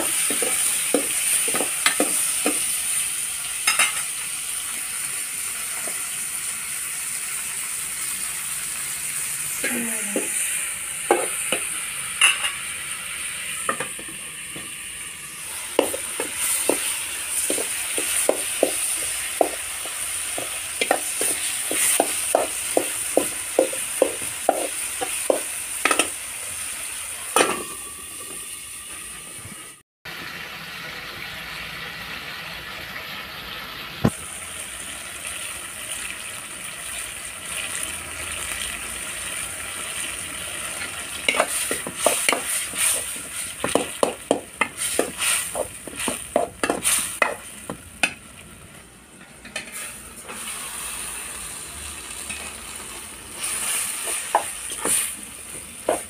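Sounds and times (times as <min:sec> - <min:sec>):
tomatoes sizzling in a pan: 0:00.0 - 0:56.0
metal spoon scraping a pan: 0:41.3 - 0:47.4.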